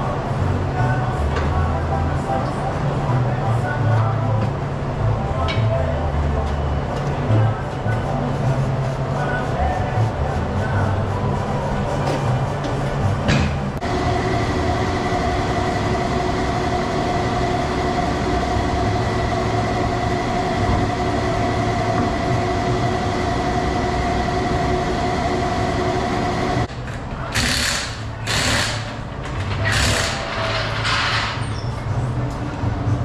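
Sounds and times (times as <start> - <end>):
steady droning with held tones: 13.8 - 26.7
pneumatic impact wrench bursts: 27.3 - 29.0, 29.6 - 30.4.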